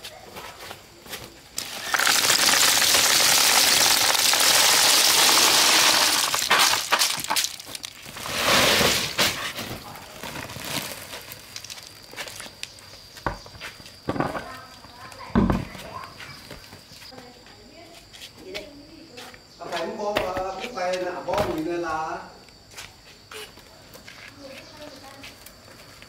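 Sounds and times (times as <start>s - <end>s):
corn kernels poured into sack: 1.6s - 12.4s.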